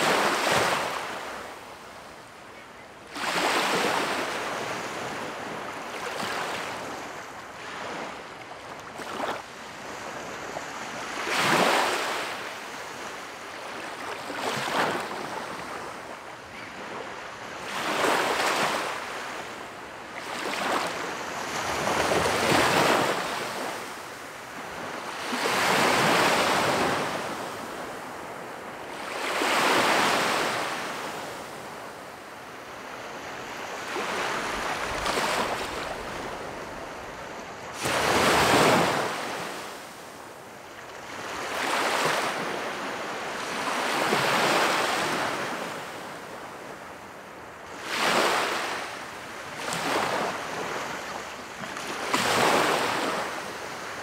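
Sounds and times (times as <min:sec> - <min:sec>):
small waves breaking on beach: 0:00.0 - 0:54.0.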